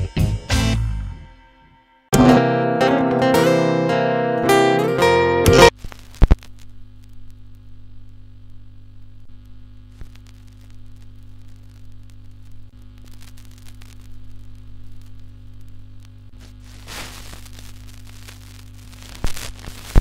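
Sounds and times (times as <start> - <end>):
guitar music: 0.0 - 5.7
electrical hum: 2.2 - 20.0
faint static hiss: 2.2 - 20.0.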